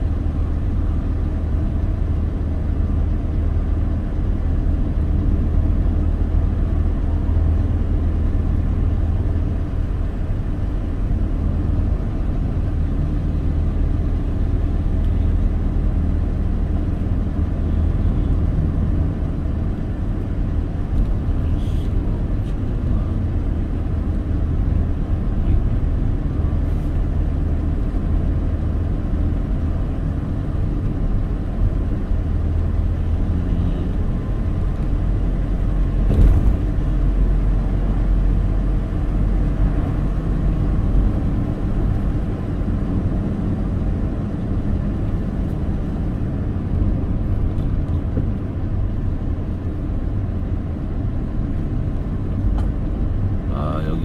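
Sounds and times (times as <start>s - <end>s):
car engine and road noise: 0.0s - 54.0s
short thump: 36.0s - 36.7s.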